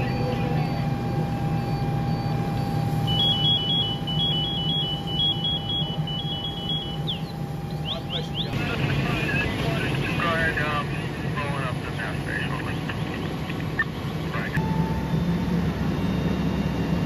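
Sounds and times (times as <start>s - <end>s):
electronic alarm beeping: 0.0s - 8.6s, 14.6s - 17.0s
fire engine rumble and whine: 0.0s - 17.0s.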